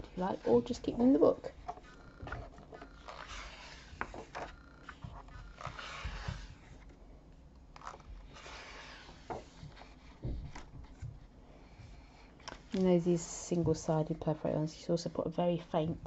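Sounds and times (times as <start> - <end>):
paper pages turning: 1.6 - 6.9, 7.7 - 11.0.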